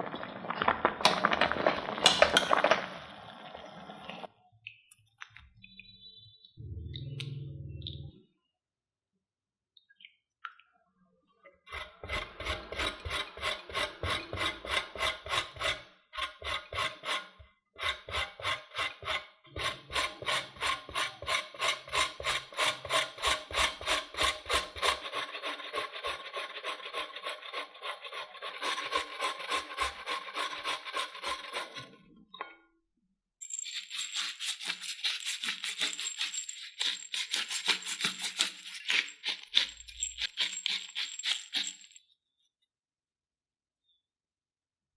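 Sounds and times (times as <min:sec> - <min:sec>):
potato rasping on metal grater: 0:11.7 - 0:31.9, 0:33.6 - 0:41.6
pepper grinder grinding: 0:33.4 - 0:42.0.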